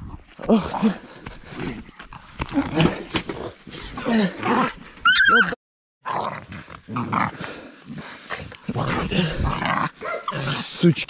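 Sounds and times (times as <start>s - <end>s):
puppies growling: 4.3s - 10.7s
puppy yelping: 5.0s - 5.6s.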